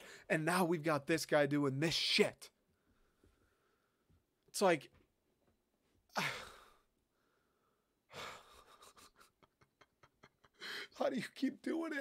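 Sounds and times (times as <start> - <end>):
man breathing: 0.0 - 0.3, 2.6 - 4.2, 6.1 - 8.8, 10.5 - 11.0.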